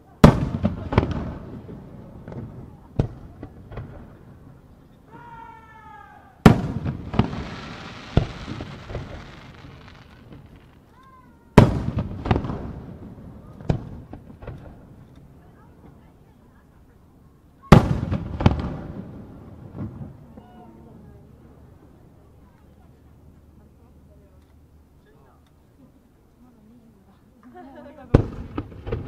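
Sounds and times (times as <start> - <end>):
firework shells booming: 0.2 - 4.5, 6.4 - 10.9, 11.6 - 15.2, 17.7 - 20.3, 28.1 - 29.0
firework whistling: 6.5 - 10.9
firework crackling hiss: 6.5 - 14.6.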